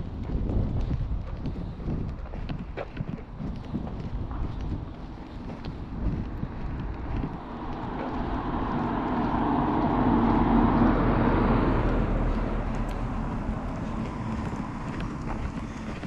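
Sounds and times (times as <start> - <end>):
vehicle passing by: 5.7 - 16.0.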